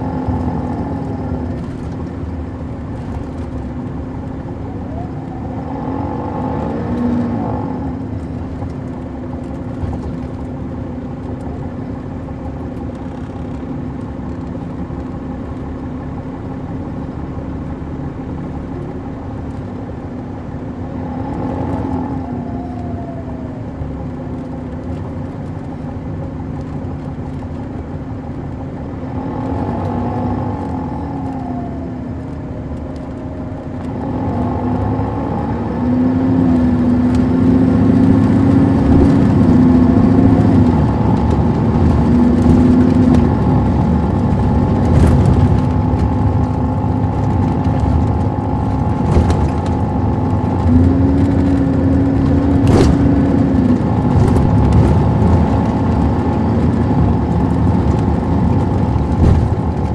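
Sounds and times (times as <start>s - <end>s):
diesel coach engine under way: 0.0s - 59.9s.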